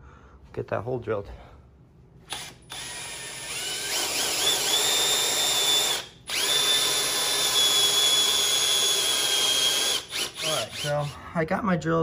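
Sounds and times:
electric drill boring metal: 2.3s - 11.1s.

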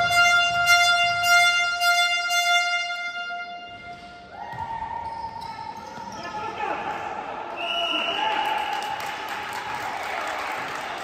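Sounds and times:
horn sounding long notes: 0.0s - 3.8s.

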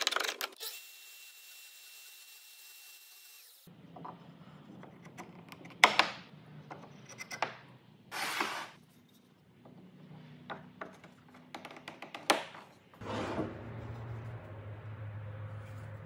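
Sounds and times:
wood scraping slide: 8.1s - 8.8s, 13.0s - 14.4s.

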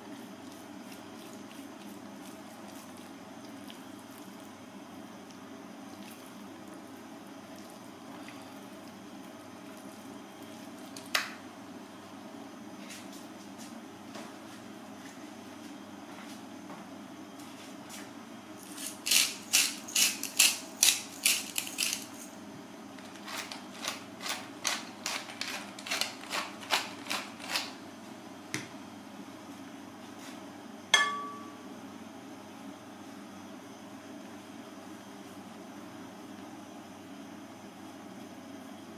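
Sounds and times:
hard object clinking on plate: 31.0s - 31.6s.

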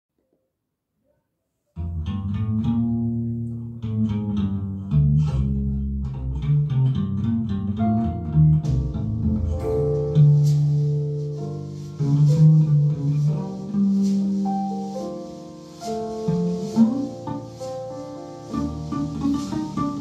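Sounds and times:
instrumental music on speakers: 8.6s - 20.0s.

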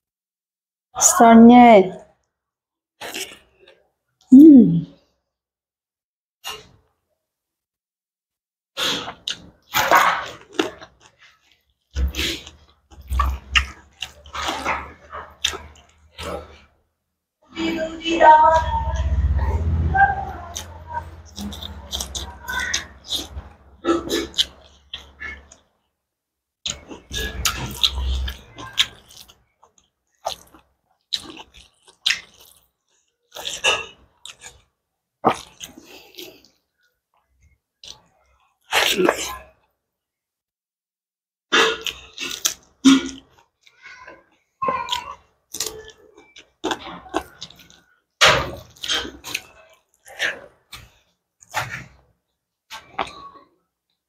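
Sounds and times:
chewing and mouth noises: 8.8s - 16.6s, 18.2s - 25.6s, 26.7s - 39.7s, 41.5s - 52.0s
low rumble: 18.5s - 21.7s
wet mouth smacks and chewing: 26.7s - 32.7s, 45.5s - 47.8s.

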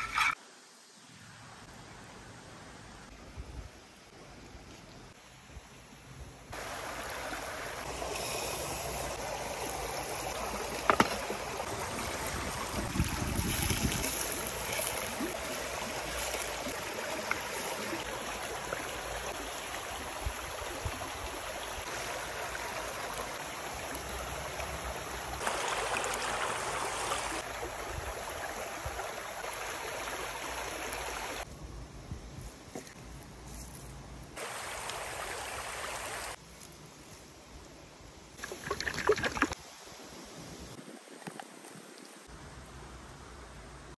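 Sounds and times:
stream water rushing over rocks: 6.5s - 31.5s, 34.4s - 36.4s, 38.4s - 39.7s.

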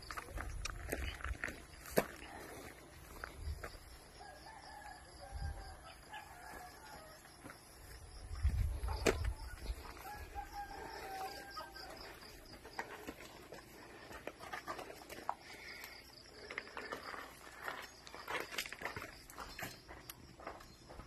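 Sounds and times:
footsteps: 0.0s - 4.1s, 6.4s - 21.0s
rooster crowing: 4.2s - 7.6s, 9.4s - 12.5s.

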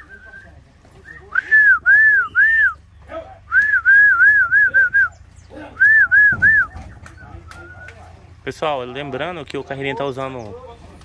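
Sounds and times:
person whistling loudly: 1.1s - 2.8s, 3.5s - 5.1s, 5.8s - 6.8s.

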